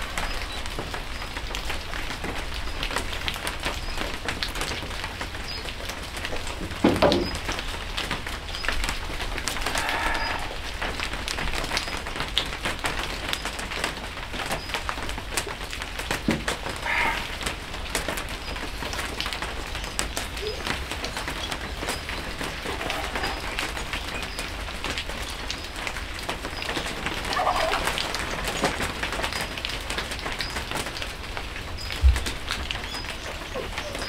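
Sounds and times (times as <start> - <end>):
rain patter and drips: 0.0 - 34.0
knock: 6.8 - 7.4
short pitched calls: 9.7 - 10.6, 16.8 - 17.5.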